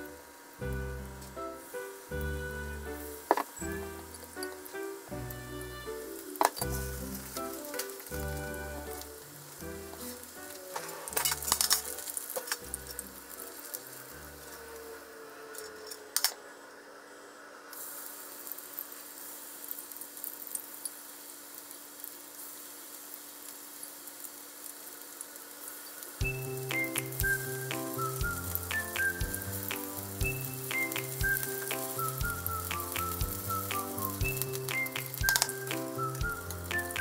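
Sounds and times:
background music: 0.0 - 14.6, 26.2 - 37.0
tempura sizzling in oil: 0.0 - 37.0.

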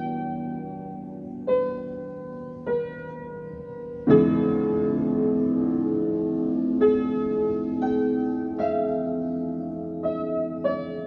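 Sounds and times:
slow piano music: 0.0 - 11.0.

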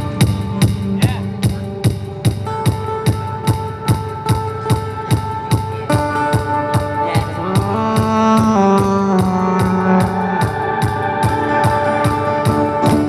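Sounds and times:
amplified acoustic guitar chords: 0.0 - 13.0.

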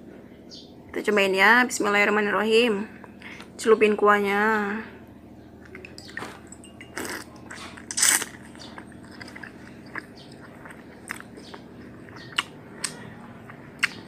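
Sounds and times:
biting and chewing: 5.6 - 14.0
wet mouth clicks and smacks: 6.9 - 14.0.

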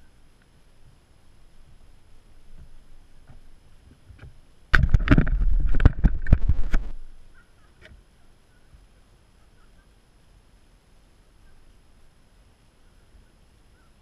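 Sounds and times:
camera knocks and scrapes on gravel: 4.2 - 7.1.

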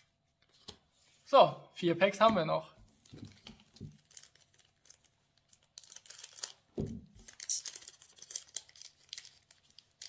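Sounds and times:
foil wrapper tearing and crinkling: 4.0 - 10.0.

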